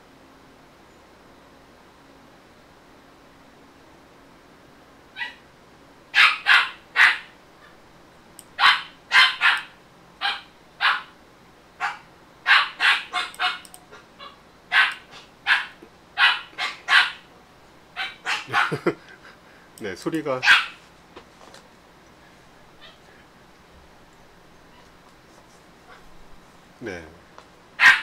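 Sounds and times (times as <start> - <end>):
dog yapping: 5.2 - 5.4, 6.2 - 7.3, 8.6 - 11.1, 11.8 - 13.6, 14.2 - 17.3, 18.0 - 18.8, 20.4 - 20.8, 22.8 - 23.0, 27.8 - 28.0.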